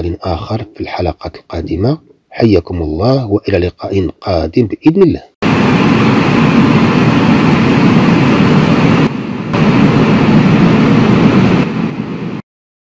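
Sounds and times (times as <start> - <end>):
loud steady rumbling: 5.4 - 12.4.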